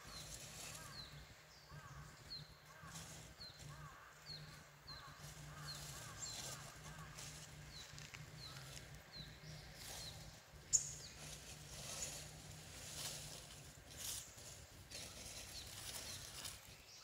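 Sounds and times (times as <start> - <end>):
bird chirping: 0.0 - 12.8
light outdoor ambience: 0.0 - 17.0.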